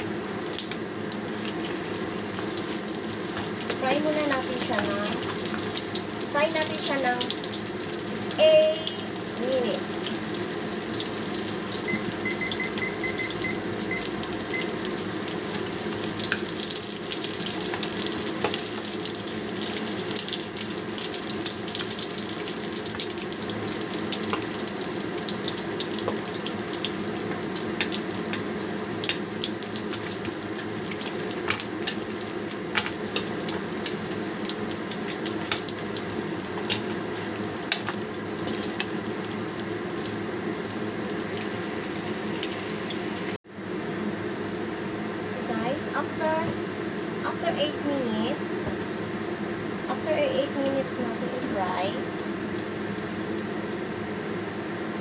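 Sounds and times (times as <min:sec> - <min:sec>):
meat sizzling in hot oil: 0:00.0 - 0:43.4
high beeps: 0:11.8 - 0:14.8.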